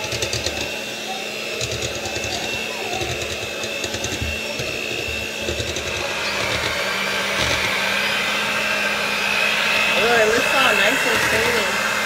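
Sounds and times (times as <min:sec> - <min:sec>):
blender motor whining: 0:00.0 - 0:12.0.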